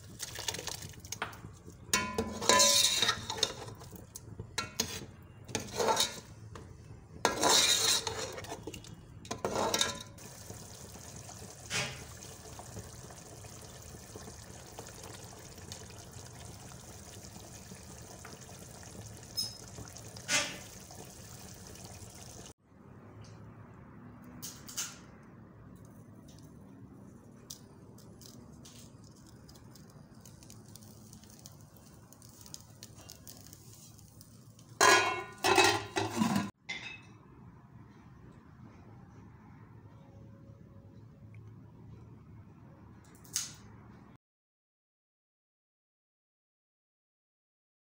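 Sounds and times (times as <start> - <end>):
curry bubbling in pot: 0.0 - 22.6, 28.9 - 36.3
metal spoon scraping pot: 2.0 - 3.9, 4.6 - 6.4, 7.2 - 10.2, 34.8 - 36.5.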